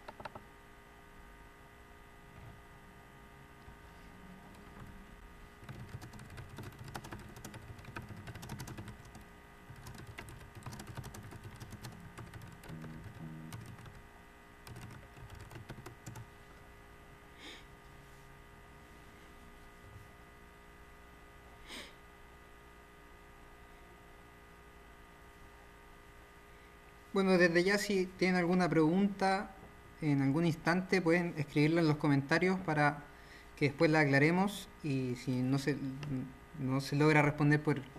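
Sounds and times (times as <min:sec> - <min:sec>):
faint keyboard typing: 0:00.0 - 0:00.4, 0:05.6 - 0:14.0, 0:14.6 - 0:16.3.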